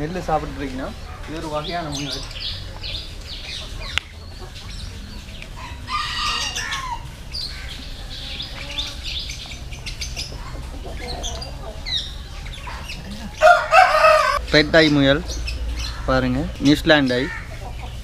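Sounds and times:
chickens clucking: 0.0s - 18.0s
rooster crowing: 5.6s - 7.1s, 13.4s - 14.4s.

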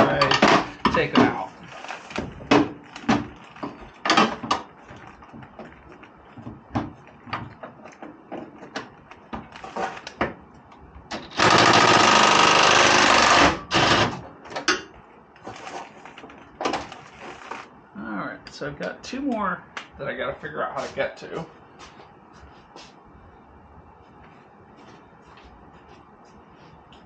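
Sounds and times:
impact wrench hammering: 11.2s - 14.1s.

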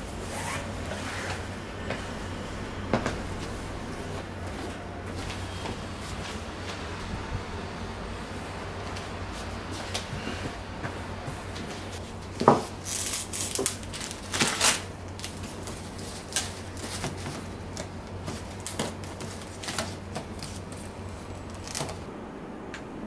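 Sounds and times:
cloth rustling: 0.0s - 2.1s.

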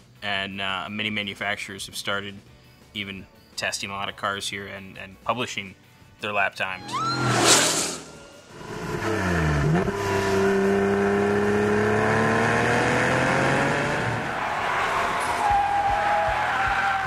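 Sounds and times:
race car whooshing past: 6.8s - 11.4s
race car engine accelerating: 6.8s - 14.3s.

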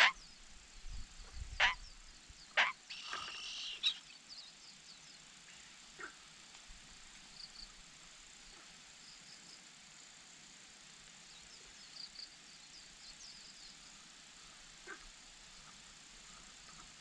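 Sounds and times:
distant bird chirps: 1.6s - 4.2s.

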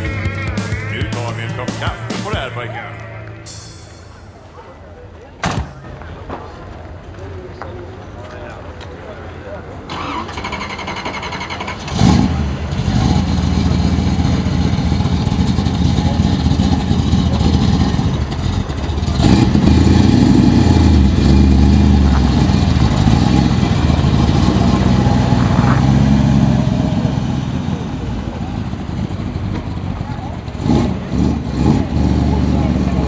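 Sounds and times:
car engine starting and idling: 9.9s - 33.0s
car pulling away: 9.9s - 33.0s.

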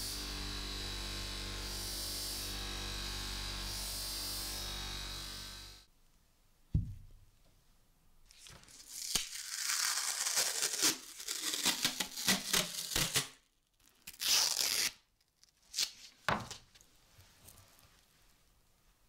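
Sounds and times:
sanding cloth tearing: 8.8s - 13.4s.

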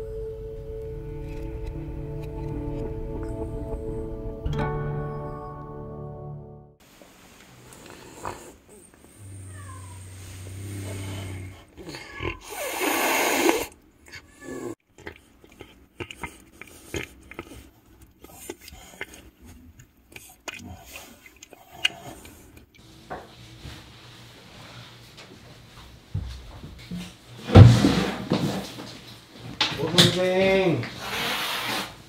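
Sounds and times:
cat eating wet food: 13.8s - 22.9s.

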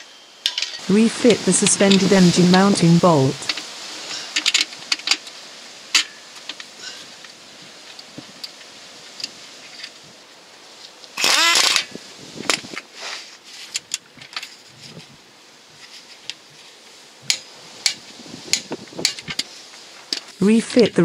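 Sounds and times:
power wrench spinning: 11.2s - 11.9s.

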